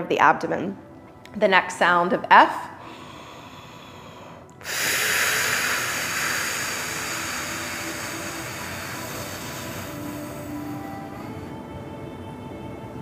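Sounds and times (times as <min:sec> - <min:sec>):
woman exhaling forcefully: 0:04.6 - 0:11.4.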